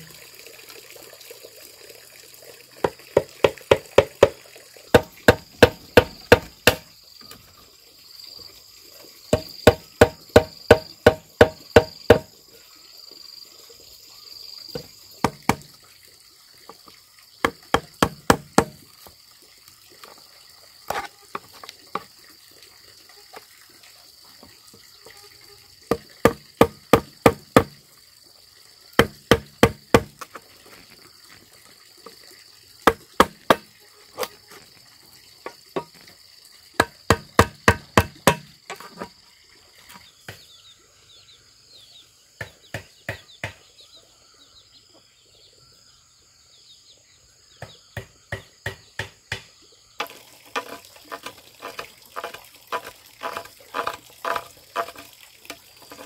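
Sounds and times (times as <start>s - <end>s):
blade chopping bamboo: 3.2s - 6.9s, 9.3s - 12.3s, 14.8s - 15.7s, 17.4s - 18.8s, 25.9s - 27.8s, 29.0s - 30.4s, 32.8s - 33.7s, 36.8s - 39.1s, 48.0s - 55.1s.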